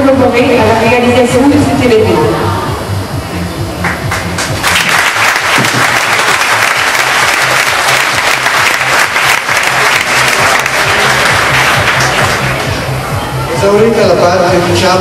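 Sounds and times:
audience applauding: 3.8s - 12.8s.

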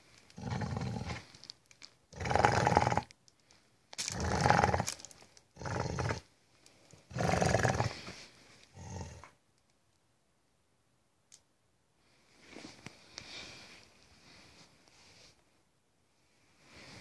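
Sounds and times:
dog growling: 0.4s - 1.3s, 2.1s - 3.1s, 4.1s - 5.0s, 5.6s - 6.3s, 7.1s - 8.1s, 8.7s - 9.3s.

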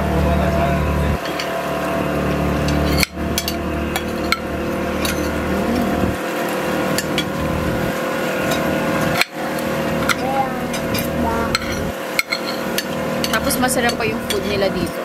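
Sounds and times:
boat engine running: 0.0s - 15.0s
cutlery clinking on a plate: 11.5s - 14.6s.

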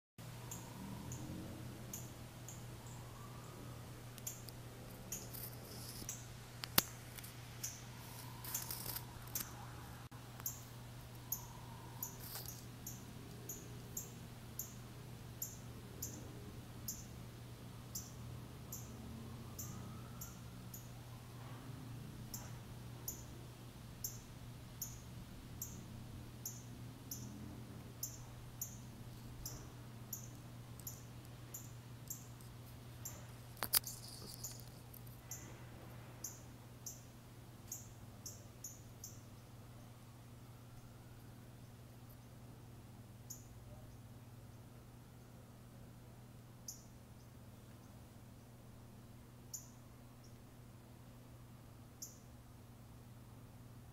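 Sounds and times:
faint low hum: 0.2s - 53.9s
bird chirps: 0.4s - 1.3s, 7.6s - 9.6s, 10.4s - 14.8s, 15.4s - 16.3s, 17.9s - 19.0s, 19.6s - 20.9s, 24.0s - 27.4s, 28.0s - 32.4s, 37.7s - 39.9s, 52.0s - 52.2s.

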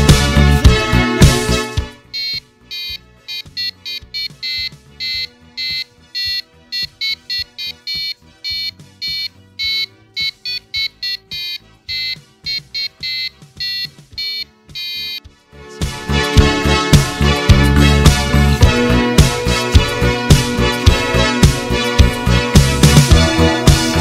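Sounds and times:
quiet background music: 0.0s - 24.0s
buzzer beeping melody: 2.0s - 15.3s.

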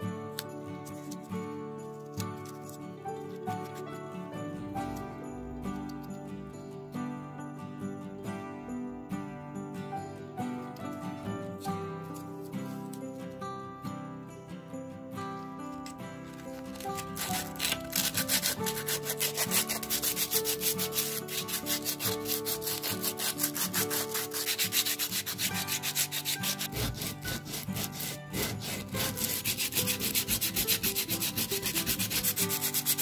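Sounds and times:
sandpaper rasping on coconut shell: 16.6s - 33.0s.

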